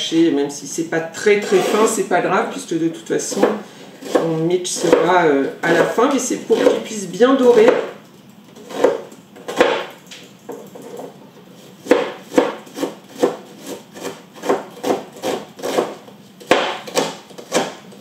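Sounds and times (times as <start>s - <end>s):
knife chopping: 3.2s - 8.0s, 8.6s - 10.0s, 11.8s - 18.0s.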